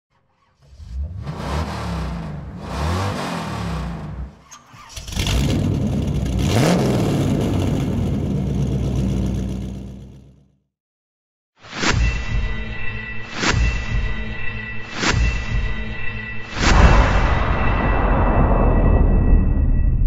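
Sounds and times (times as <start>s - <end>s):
tyres churning through snow: 0.8s - 9.8s.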